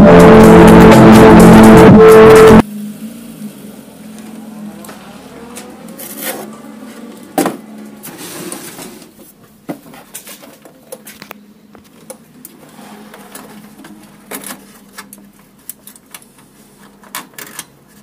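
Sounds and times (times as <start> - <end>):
loud electronic music: 0.0 - 2.6.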